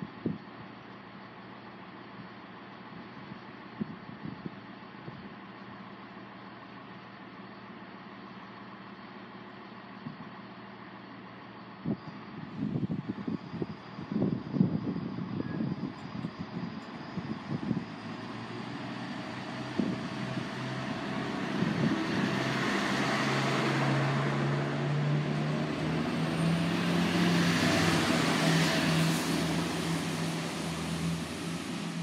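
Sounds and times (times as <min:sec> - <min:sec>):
diesel train engine hum: 0:00.0 - 0:32.0
wheels rushing on rails: 0:12.6 - 0:32.0.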